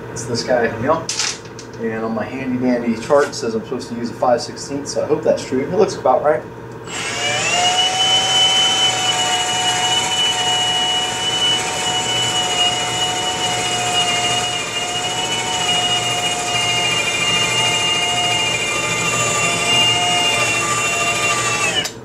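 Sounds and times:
electric drill whining: 6.8s - 22.0s.

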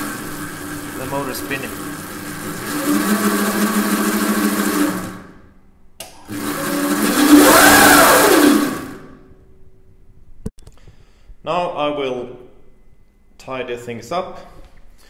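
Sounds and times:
electric motor whining: 0.0s - 5.5s, 6.2s - 9.2s.

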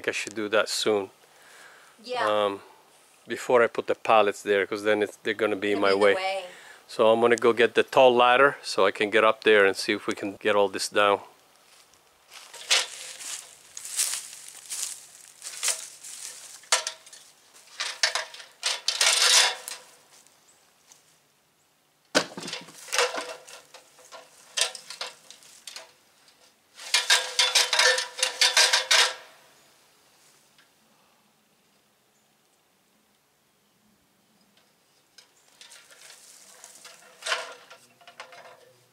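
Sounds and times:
metal ladder clanking and rattling: 12.4s - 20.0s, 22.2s - 26.0s, 26.8s - 29.4s, 35.3s - 38.8s
ladder section sliding rattle: 12.5s - 14.1s, 15.5s - 20.0s, 22.3s - 26.0s, 26.8s - 29.3s, 35.6s - 38.7s
ladder knocking against wall: 22.2s - 25.2s.

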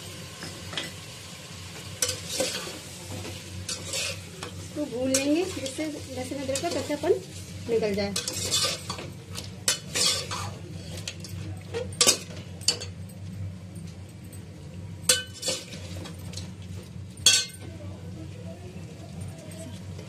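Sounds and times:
light sizzle: 0.0s - 20.0s
metal spatula scraping a pot: 2.0s - 2.8s, 3.7s - 4.3s, 8.1s - 9.0s, 9.7s - 11.2s, 15.1s - 16.0s.

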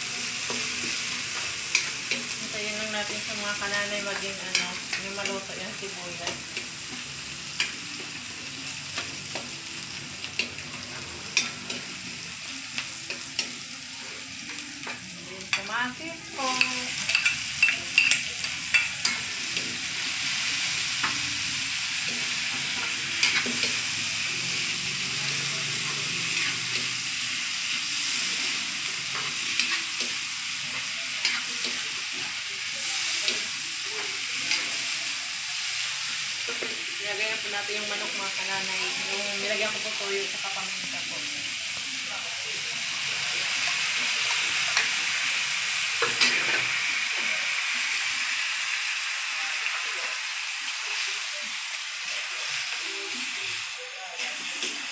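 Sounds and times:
onion and garlic sizzling in oil: 0.0s - 54.9s
utensil scraping a metal wok: 16.3s - 35.0s, 43.2s - 47.3s.

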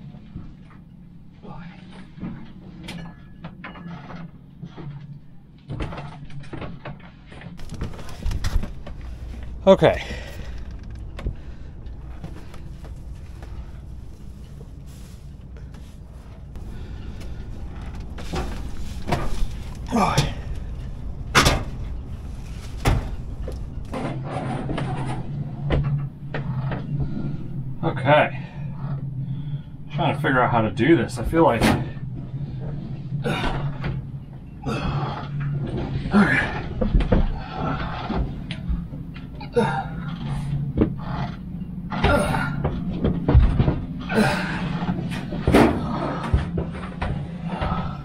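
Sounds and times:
steady low hum: 0.0s - 48.0s
footsteps on steps: 7.6s - 24.0s
hard parts knocking and clacking: 7.6s - 25.8s
heavy low thuds: 7.6s - 26.2s.

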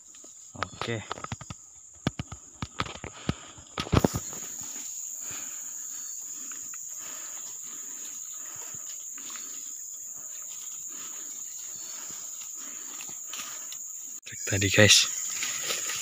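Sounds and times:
high-pitched insect drone: 3.8s - 16.0s.

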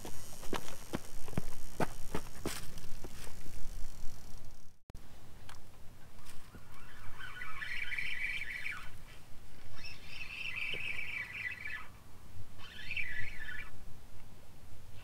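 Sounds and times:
fishing reel whirring: 0.0s - 4.8s, 6.6s - 9.0s, 9.7s - 11.9s, 12.6s - 13.7s.

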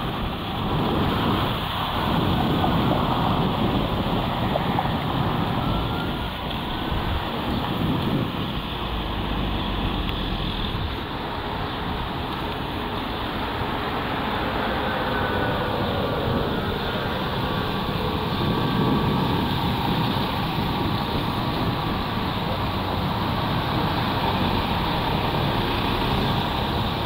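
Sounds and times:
street traffic: 0.0s - 27.0s.

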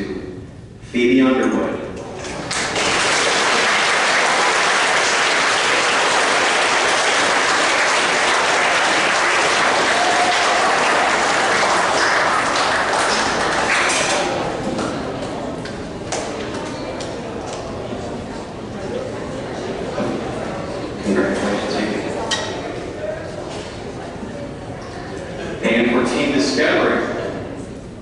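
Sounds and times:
audience applauding: 2.2s - 14.9s.

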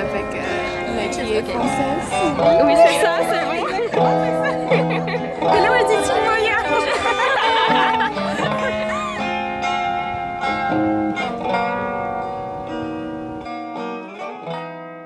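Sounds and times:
plucked guitar melody: 0.0s - 15.0s.

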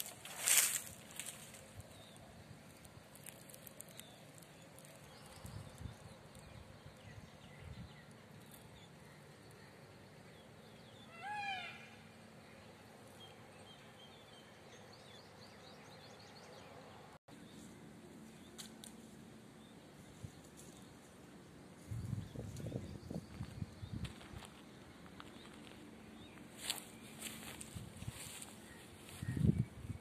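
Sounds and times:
peafowl call: 11.1s - 12.0s.

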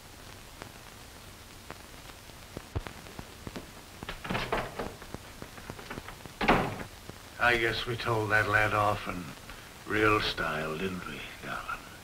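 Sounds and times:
film soundtrack hiss: 0.0s - 12.0s
noisy rustle: 0.0s - 12.0s
clicks and crackle: 0.1s - 7.4s.

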